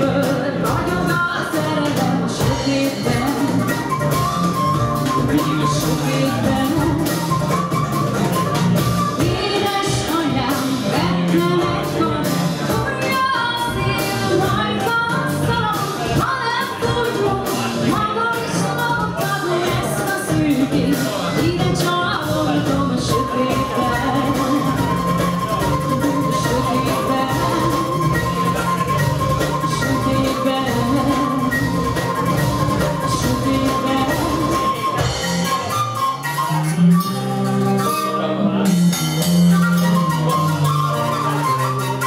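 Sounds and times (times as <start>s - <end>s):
woman singing: 0.0s - 4.3s, 5.0s - 7.5s, 9.2s - 28.8s, 29.5s - 32.2s, 32.8s - 35.2s
bass guitar: 0.0s - 42.0s
drums: 0.0s - 42.0s
guitar: 0.0s - 42.0s
wooden flute melody: 0.0s - 42.0s.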